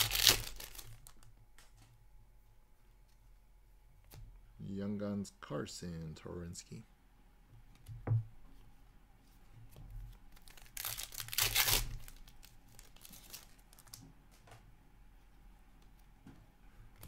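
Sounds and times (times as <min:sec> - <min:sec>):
foil wrapper tearing and crinkling: 0:00.0 - 0:01.2, 0:10.3 - 0:14.0.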